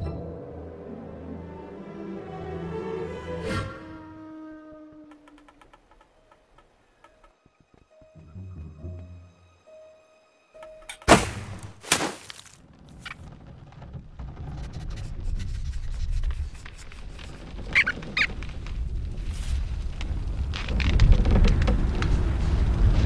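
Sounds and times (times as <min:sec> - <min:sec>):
low rumbling noise: 0:12.6 - 0:23.0.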